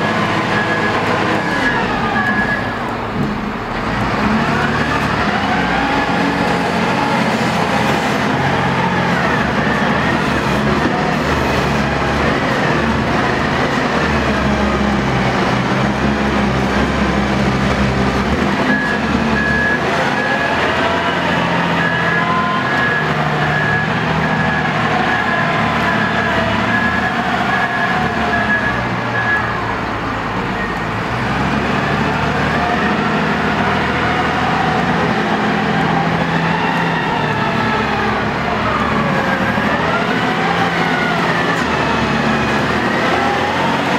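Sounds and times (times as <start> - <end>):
wheel loader diesel engine: 0.0 - 43.9.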